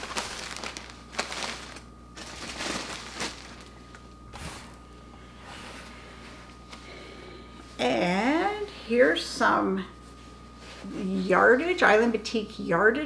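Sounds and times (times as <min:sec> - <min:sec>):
packaging rustling and crinkling: 0:00.0 - 0:04.1.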